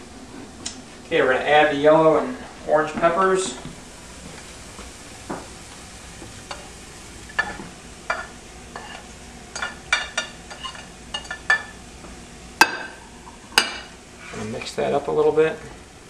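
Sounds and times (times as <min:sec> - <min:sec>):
meat and peppers sizzling in a pan: 0:03.7 - 0:14.4.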